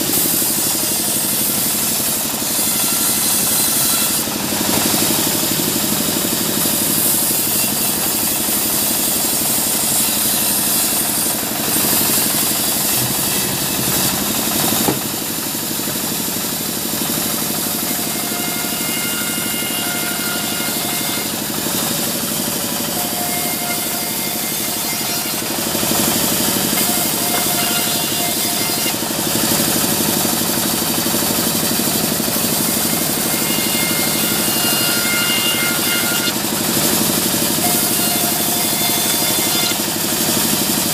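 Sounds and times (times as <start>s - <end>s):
band saw cutting logs: 0.0s - 40.9s
sharp knock: 12.2s - 15.2s.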